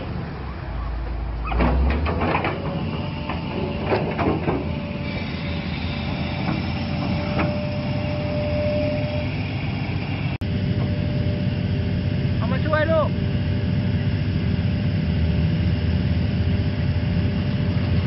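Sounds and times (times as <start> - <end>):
excavator diesel engine running: 0.0 - 18.0
metallic clanks and knocks: 1.5 - 4.8
thin steady whine: 2.6 - 18.0.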